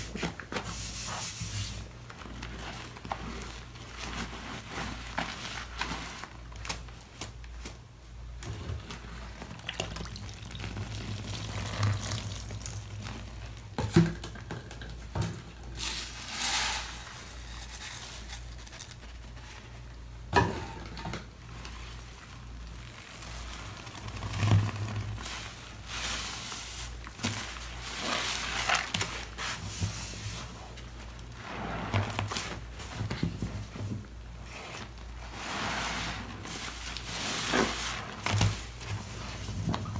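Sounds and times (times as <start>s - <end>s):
sponges squelching in foam: 0.0s - 6.6s, 8.8s - 13.6s, 21.6s - 33.0s, 34.4s - 39.9s.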